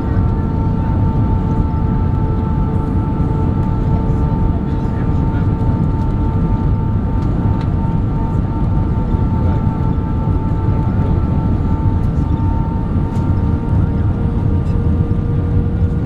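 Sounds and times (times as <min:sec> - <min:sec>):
airplane cabin rumble: 0:00.0 - 0:16.0.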